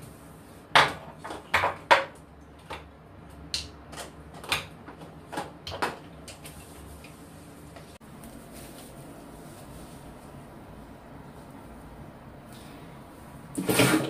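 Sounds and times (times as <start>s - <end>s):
cloth wiping counter: 6.5s - 11.9s.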